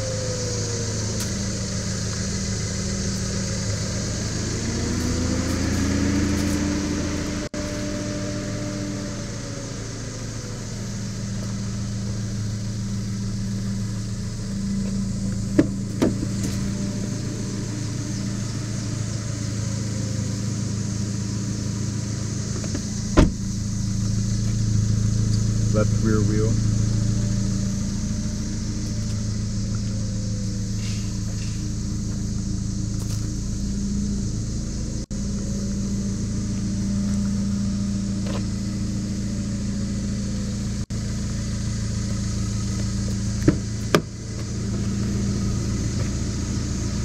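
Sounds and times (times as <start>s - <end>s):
car engine idling: 0.0s - 47.0s.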